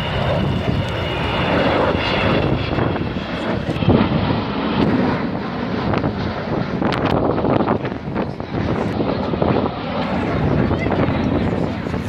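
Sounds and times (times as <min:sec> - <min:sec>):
high whine: 0:00.0 - 0:12.0
jet aircraft flying low: 0:00.0 - 0:12.0.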